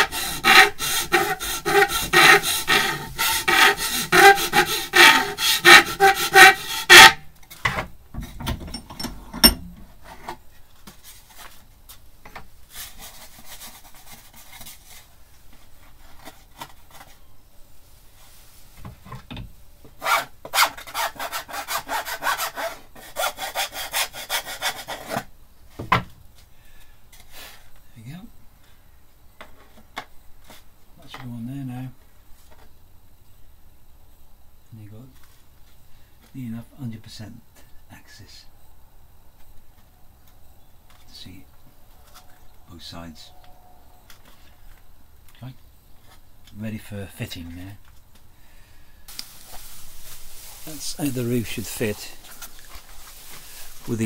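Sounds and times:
hand file rasping on wood: 0:00.0 - 0:07.2, 0:20.0 - 0:25.2
soft rubbing strokes: 0:17.8 - 0:18.8, 0:49.1 - 0:54.0.

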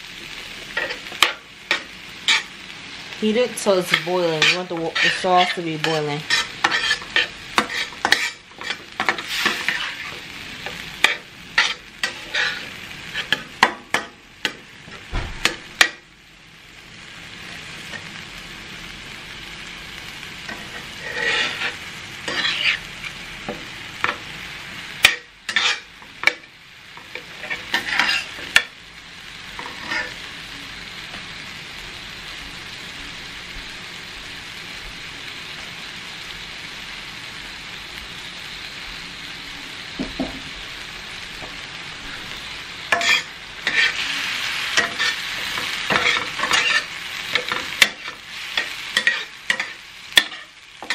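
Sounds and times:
meat sizzling in a skillet: 0:00.0 - 0:50.9
metal spatula scraping a pan: 0:00.6 - 0:02.6, 0:03.3 - 0:16.0, 0:20.5 - 0:24.3, 0:25.0 - 0:28.7, 0:29.5 - 0:30.3, 0:42.1 - 0:50.9.

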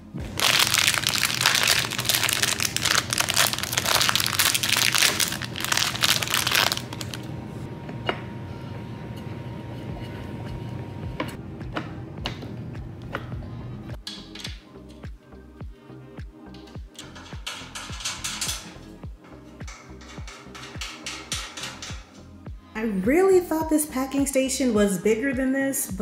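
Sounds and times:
plastic bag crinkling: 0:00.2 - 0:07.3.

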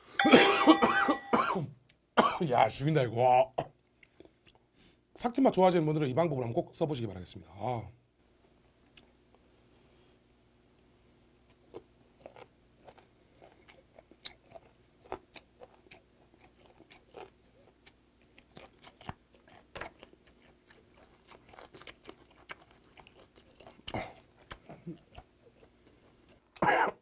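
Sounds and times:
man chewing with mouth clicks: 0:03.8 - 0:04.7, 0:08.9 - 0:09.4, 0:10.8 - 0:26.7.

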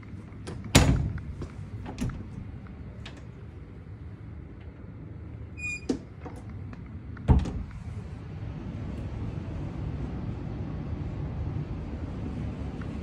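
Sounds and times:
door shutting with thump: 0:00.5 - 0:02.4, 0:07.3 - 0:07.7
closet door squeaking: 0:05.6 - 0:06.4.

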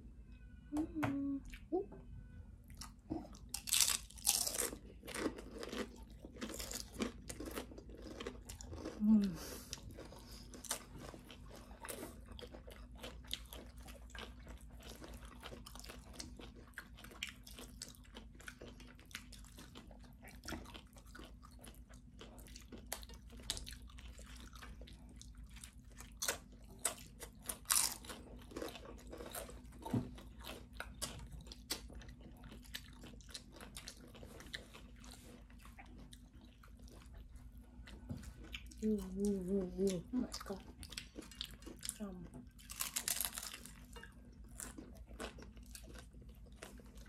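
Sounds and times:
low steady hum: 0:00.0 - 0:47.0
tortilla chips crunching: 0:02.8 - 0:37.2, 0:42.6 - 0:47.0.

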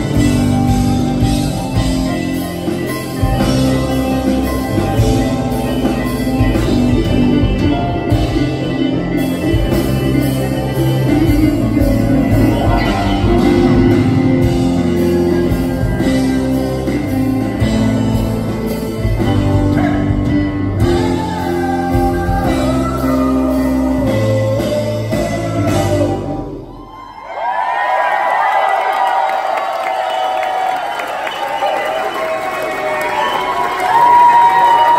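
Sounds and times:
live rock band playing: 0:00.0 - 0:27.0
concert audience cheering: 0:00.0 - 0:34.9
person singing: 0:17.7 - 0:26.6.

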